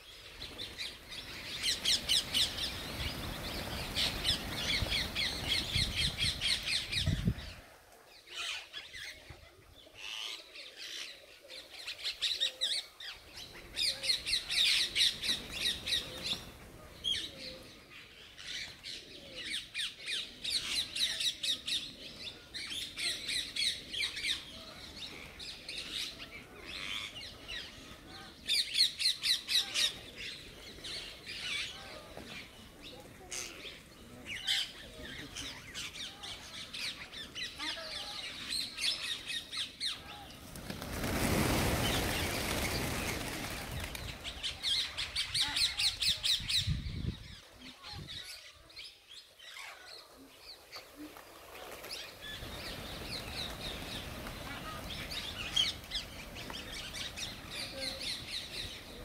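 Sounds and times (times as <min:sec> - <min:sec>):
birds chattering: 0:13.2 - 0:59.0.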